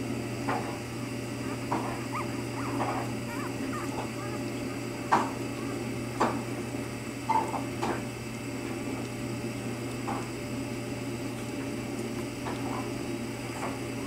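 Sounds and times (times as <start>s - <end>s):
steady low hum: 0.0s - 14.0s
puppies squeaking: 1.0s - 6.2s.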